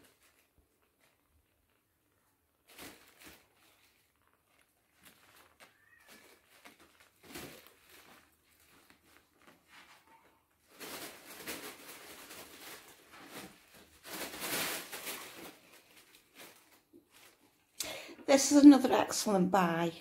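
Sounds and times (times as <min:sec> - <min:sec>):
rustling and scuffing: 0:02.7 - 0:17.5.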